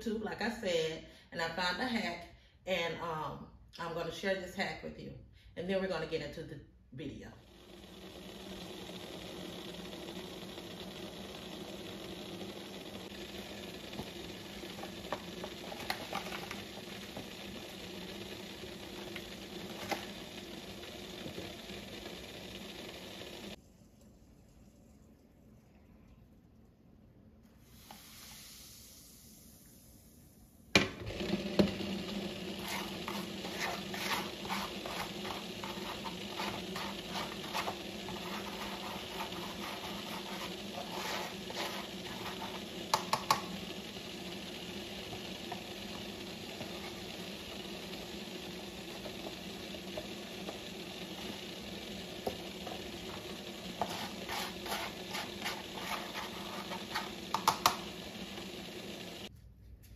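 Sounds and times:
fizzing liquid stirred in bowl: 31.6s - 59.3s.

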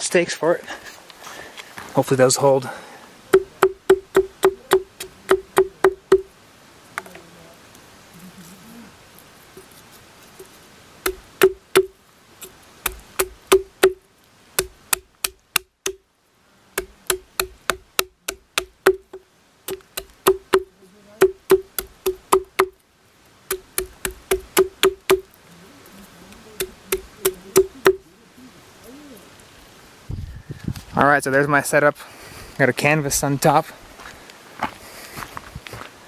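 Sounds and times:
wooden stakes being hammered: 3.3s - 6.3s, 11.0s - 14.0s, 14.6s - 16.0s, 16.7s - 22.8s, 23.4s - 25.4s, 26.6s - 28.0s.

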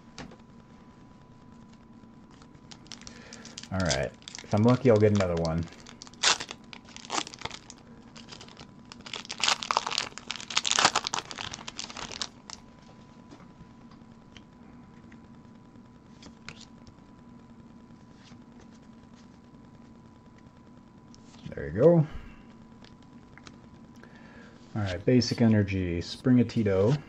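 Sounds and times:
foil wrapper crinkling and tearing: 2.3s - 12.6s.

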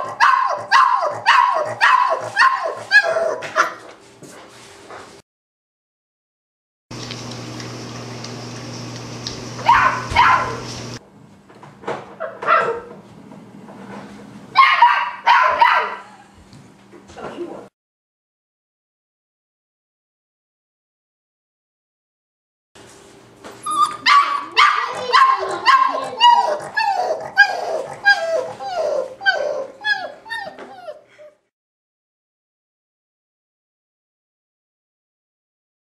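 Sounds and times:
puppy yipping and barking: 0.0s - 3.8s, 9.6s - 10.7s, 14.6s - 16.1s, 23.6s - 31.0s.

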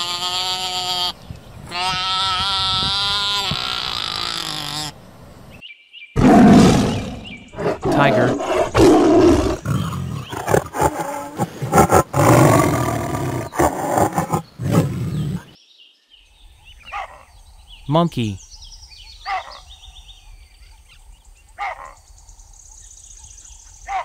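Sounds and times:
tiger roaring: 6.2s - 15.6s.

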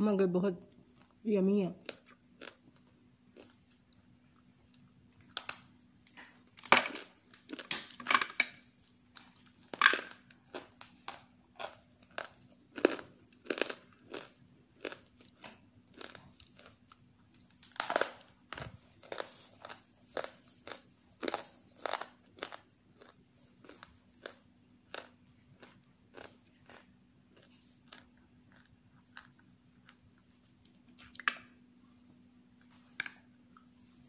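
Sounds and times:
clay being chewed and crunched: 1.8s - 3.8s, 8.8s - 31.5s.

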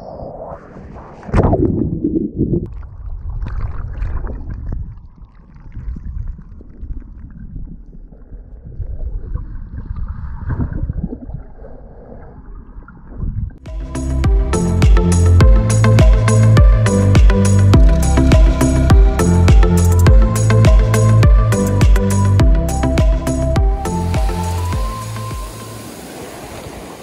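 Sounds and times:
underwater rumbling and sloshing: 0.0s - 13.7s
wave breaking: 16.0s - 21.9s, 22.6s - 27.0s.

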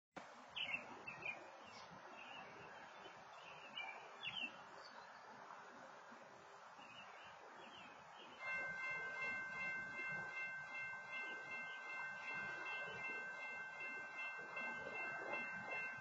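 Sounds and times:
outdoor background hiss: 0.2s - 16.0s
faint birds chirping: 6.8s - 16.0s.

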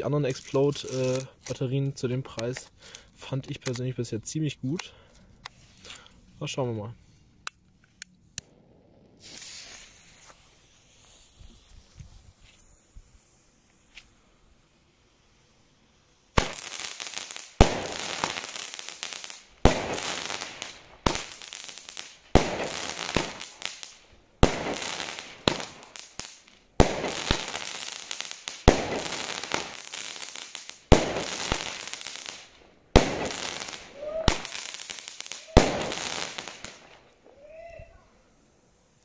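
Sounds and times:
fireworks bangs and crackle: 8.4s - 14.2s, 16.3s - 37.4s.

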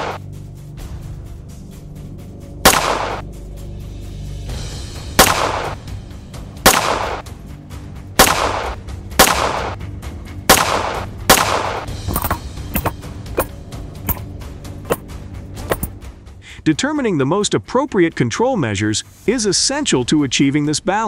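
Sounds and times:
gunshots with echo: 0.0s - 0.2s, 2.7s - 3.2s, 5.2s - 5.8s, 6.7s - 7.2s, 8.2s - 9.8s, 10.5s - 11.9s
background music: 0.0s - 21.0s.

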